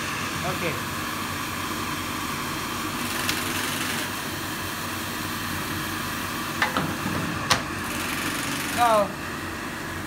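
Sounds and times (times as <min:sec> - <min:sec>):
blower and fan rushing air: 0:00.0 - 0:10.0.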